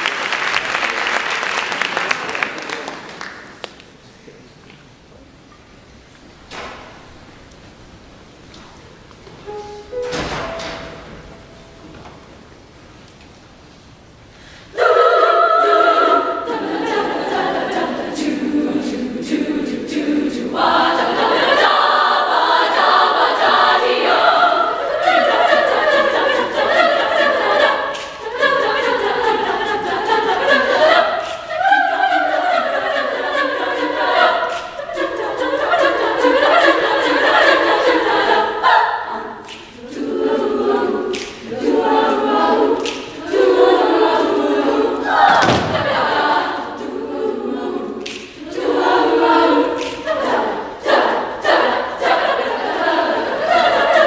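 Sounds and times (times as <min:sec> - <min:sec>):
girls choir singing: 0:14.6 - 0:54.0.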